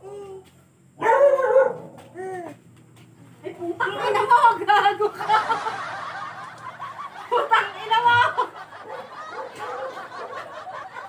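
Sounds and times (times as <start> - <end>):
snickering laughter: 5.1 - 11.0.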